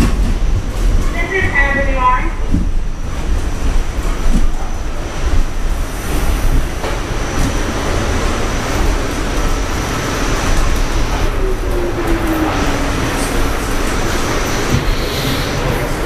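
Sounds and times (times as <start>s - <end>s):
subway wheels rumbling on track: 0.0s - 16.0s
rushing air: 2.3s - 16.0s.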